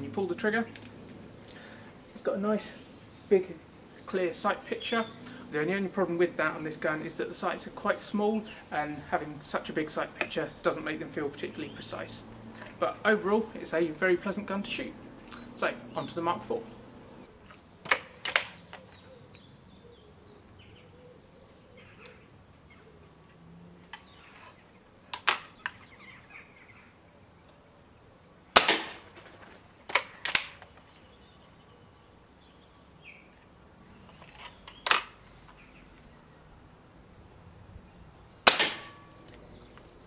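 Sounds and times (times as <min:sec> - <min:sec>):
rifle barrel clicks and clunks: 0:17.4 - 0:19.0, 0:25.1 - 0:25.9, 0:28.6 - 0:30.8, 0:34.1 - 0:35.2
air rifle shot crack: 0:28.6 - 0:29.2, 0:38.4 - 0:39.2.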